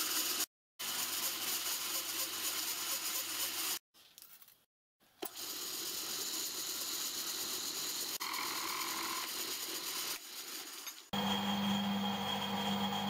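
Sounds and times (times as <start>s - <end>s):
milling machine cutting metal: 11.2s - 13.0s.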